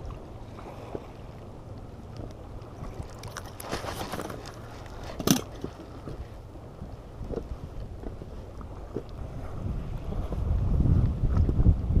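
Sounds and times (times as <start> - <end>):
low wind rumble: 0.0 - 12.0
water lapping against boat: 0.0 - 12.0.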